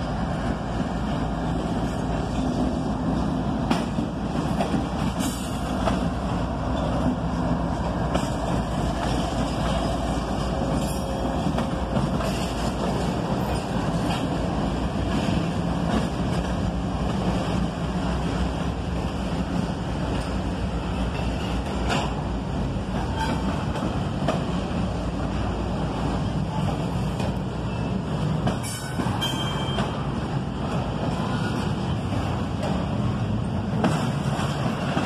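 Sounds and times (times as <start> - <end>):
diesel locomotive engines humming: 0.0 - 35.0.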